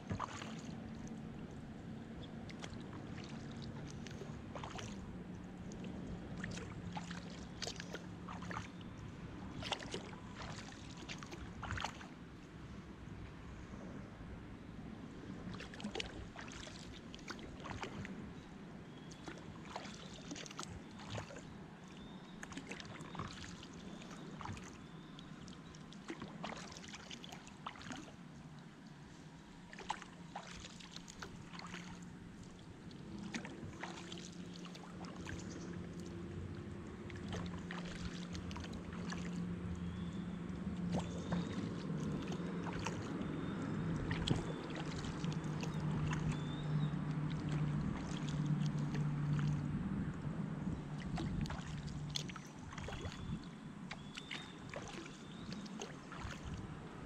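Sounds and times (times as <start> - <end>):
paddle splashing in water: 0.0 - 12.2, 15.4 - 57.0.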